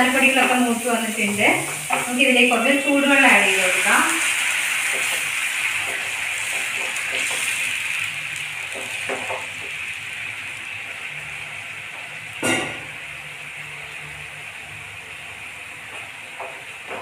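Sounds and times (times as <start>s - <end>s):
food sizzling in a frying pan: 0.0s - 17.0s.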